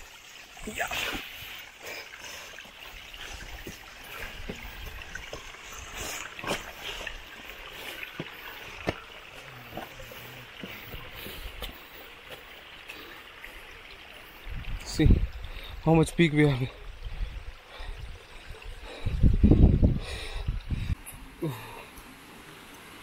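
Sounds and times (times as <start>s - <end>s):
water splashing over rocks: 0.0s - 17.0s.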